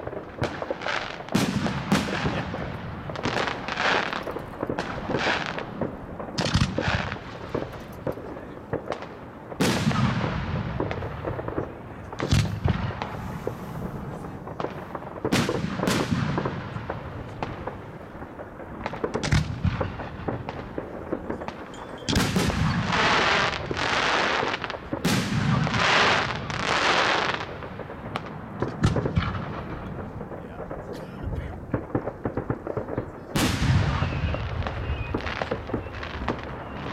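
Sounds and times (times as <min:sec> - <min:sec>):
firework bangs: 0:00.0 - 0:36.9
firework hiss: 0:12.2 - 0:17.0.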